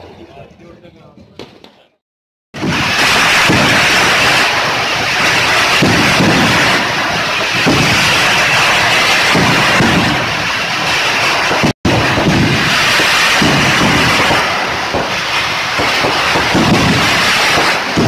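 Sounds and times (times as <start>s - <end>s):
fireworks booming: 1.4s - 1.8s, 2.5s - 18.0s
fireworks crackling: 2.6s - 18.0s.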